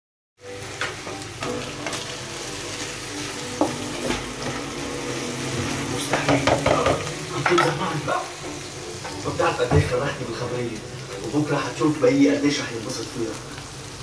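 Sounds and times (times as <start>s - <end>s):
onions sizzling in hot oil: 0.4s - 14.0s
spatula knocking on a wok: 6.1s - 7.8s.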